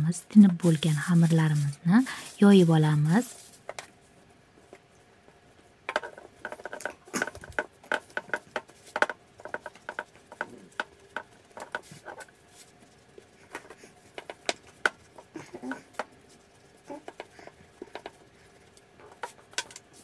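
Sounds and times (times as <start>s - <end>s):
hands patting dough: 5.3s - 20.0s.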